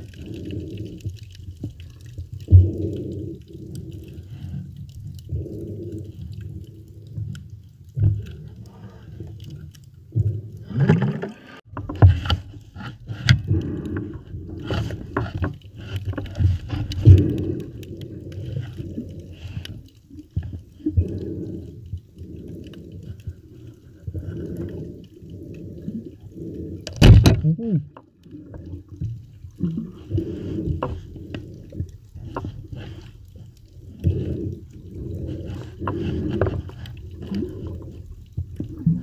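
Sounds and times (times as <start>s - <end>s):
muffled underwater water sloshing: 0.0s - 39.0s.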